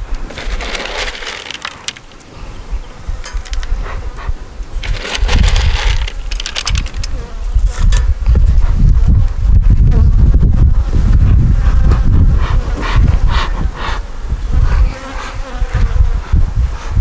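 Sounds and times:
honeybees buzzing: 0.0s - 3.8s
strong low rumble: 2.3s - 15.0s.

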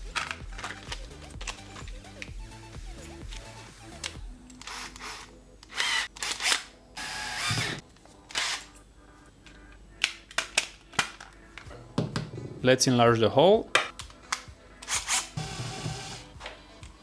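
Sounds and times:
cordless drill whirring: 4.6s - 7.8s.

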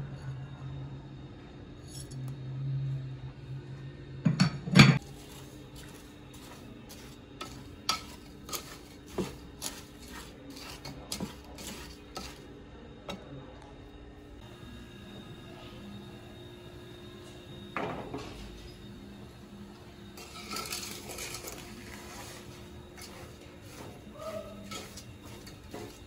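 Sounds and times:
wooden spoon stirring in pot: 5.0s - 12.5s, 20.0s - 26.0s.

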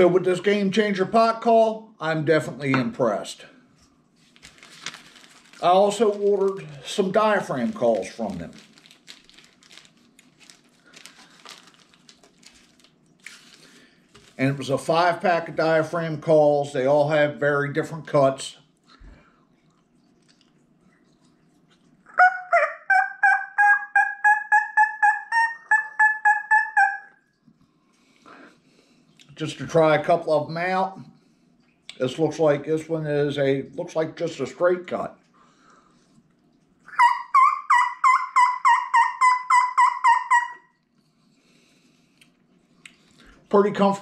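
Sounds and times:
turkey call hen yelps: 22.1s - 27.2s, 36.9s - 40.8s.

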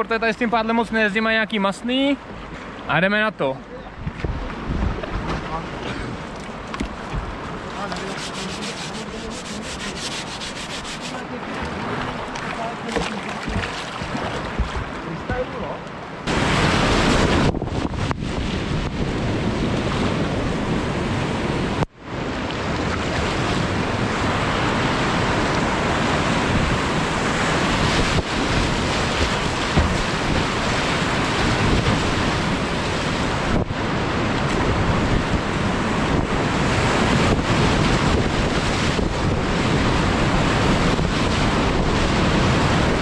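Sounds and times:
whitewater rapids rushing: 7.3s - 15.7s.

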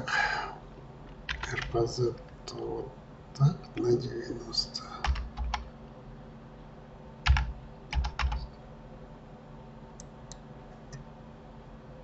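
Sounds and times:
keyboard keys clicking: 1.3s - 1.8s, 5.0s - 5.7s, 7.2s - 8.5s.

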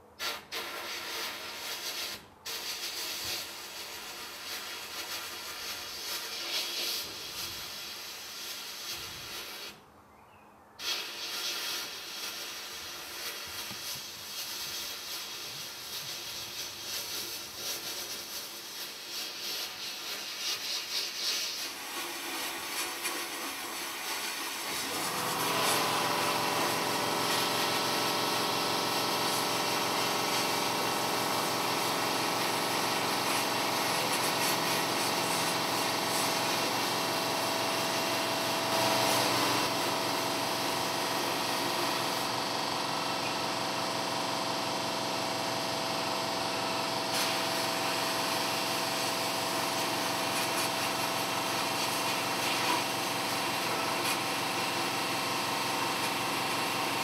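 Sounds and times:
sandblasting hiss: 0.1s - 9.8s, 10.8s - 57.0s
shop vac humming: 21.7s - 57.0s.

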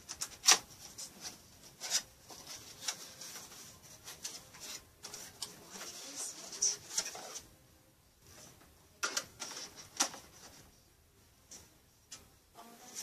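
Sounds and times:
cardboard packaging rustling: 0.0s - 7.4s.

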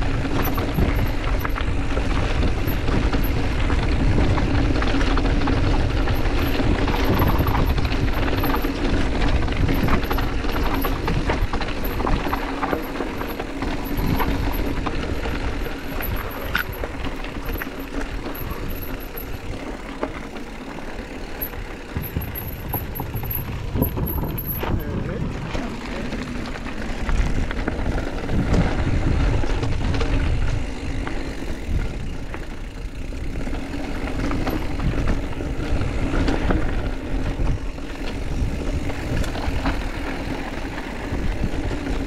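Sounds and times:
bike rattling and clicking: 0.0s - 42.0s
tyres on dirt and gravel: 0.0s - 42.0s
wind rumbling on microphone: 0.0s - 42.0s.

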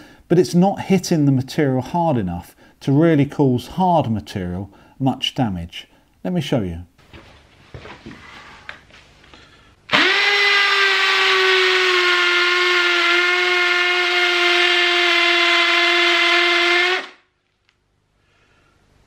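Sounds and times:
hammer drill drilling into concrete: 9.9s - 17.2s.

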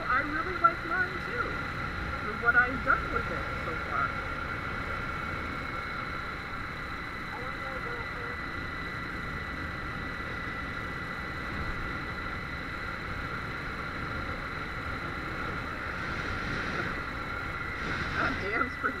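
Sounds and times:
thin high whine: 0.0s - 19.0s
wind rushing: 14.9s - 19.0s.

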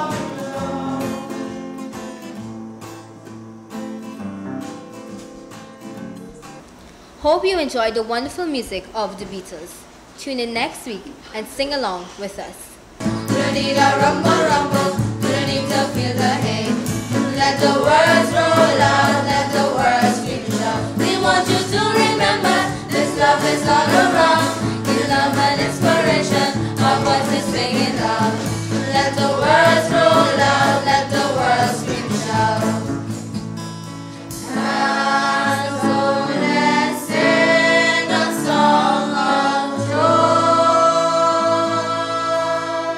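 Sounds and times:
choir singing: 0.0s - 1.8s, 13.2s - 33.2s, 34.4s - 42.9s.

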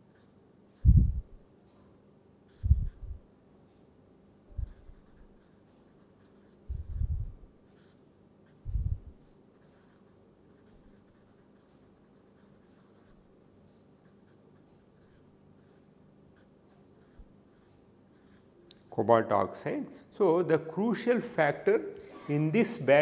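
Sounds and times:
marker scratching on paper: 2.5s - 3.2s, 4.6s - 13.2s, 14.0s - 18.5s.

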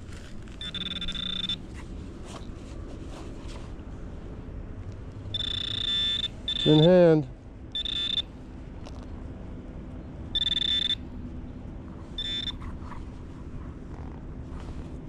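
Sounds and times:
metal detector beeping: 0.6s - 1.6s, 5.3s - 7.1s, 7.7s - 8.3s, 10.4s - 11.0s, 12.2s - 12.6s.

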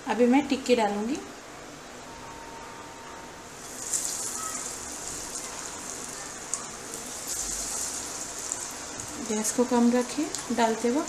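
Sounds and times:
patties sizzling in hot oil: 3.5s - 11.0s
oil popping: 3.6s - 9.5s.

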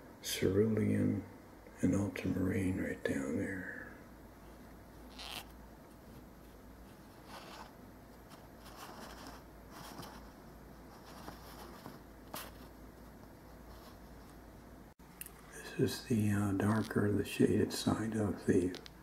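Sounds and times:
low steady hum: 0.0s - 19.0s
paper rustles and scrapes: 5.1s - 14.4s.

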